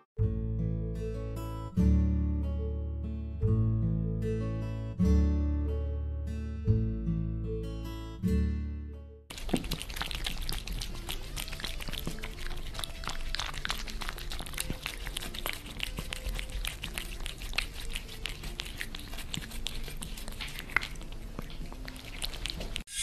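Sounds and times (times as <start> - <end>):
cats chewing on stick: 9.3 - 22.9.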